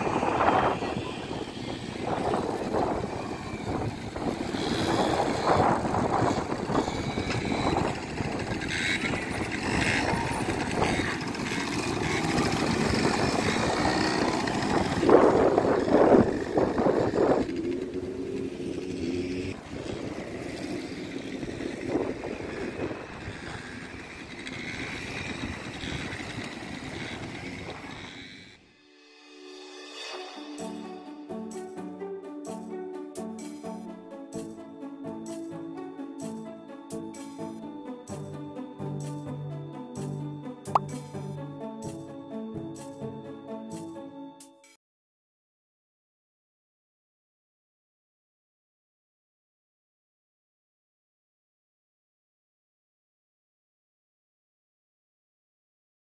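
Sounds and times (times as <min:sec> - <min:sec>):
quad bikes driving: 0:00.0 - 0:28.7, 0:36.2 - 0:44.0.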